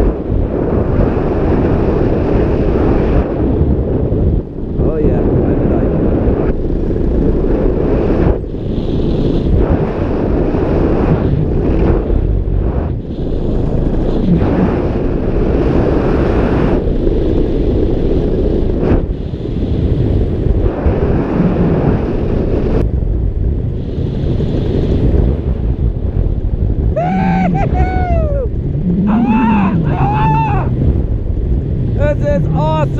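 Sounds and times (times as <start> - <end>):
wind buffeting the microphone: 0.0 - 32.9.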